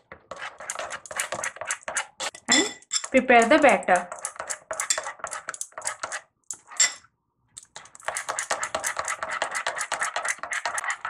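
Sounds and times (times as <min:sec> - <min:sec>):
spoon clinking against glass bowl: 0:02.4 - 0:05.1.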